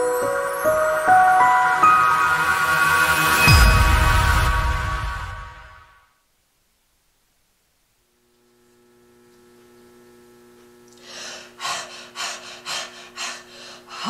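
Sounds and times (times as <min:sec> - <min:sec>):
faint steady hum: 0:06.1 - 0:14.0.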